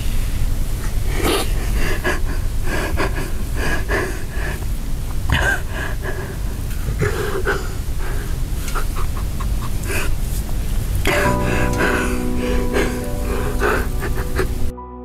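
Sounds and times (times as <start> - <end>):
steady low hum: 0.0 - 14.8
man sobbing: 5.4 - 10.2, 11.1 - 14.7.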